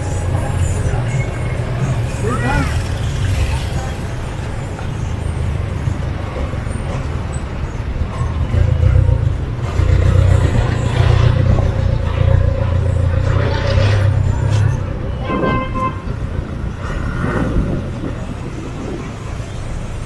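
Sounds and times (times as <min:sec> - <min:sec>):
vehicle engines running: 0:00.0 - 0:20.0.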